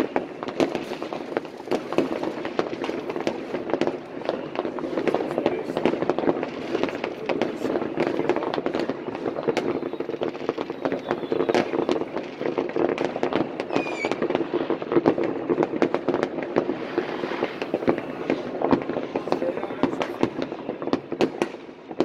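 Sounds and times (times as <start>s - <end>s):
fireworks cracks and bangs: 0.0s - 22.0s
high firework whistle: 8.7s - 12.4s, 13.6s - 14.4s.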